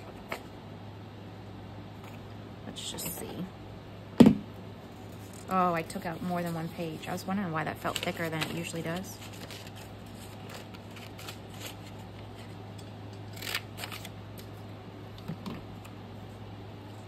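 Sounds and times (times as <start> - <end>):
steady low hum: 0.0 - 17.0
paper rustling: 7.8 - 12.5.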